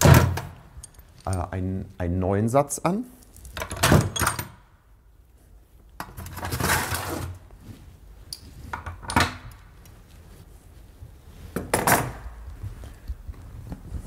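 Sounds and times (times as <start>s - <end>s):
metal parts clinking and knocking: 0.0s - 1.5s
cloth rustling: 6.6s - 8.8s, 9.5s - 11.6s, 12.2s - 14.0s.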